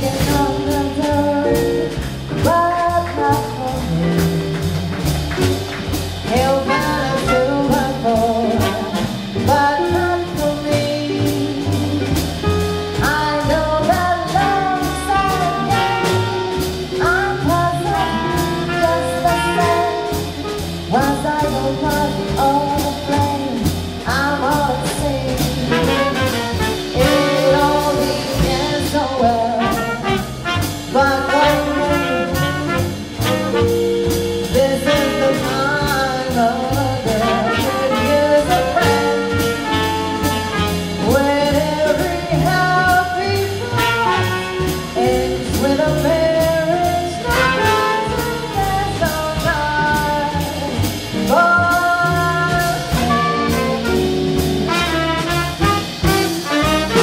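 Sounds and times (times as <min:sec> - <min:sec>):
double bass: 0:00.0 - 0:57.0
woman singing jazz: 0:00.0 - 0:57.0
saxophone: 0:52.4 - 0:57.0.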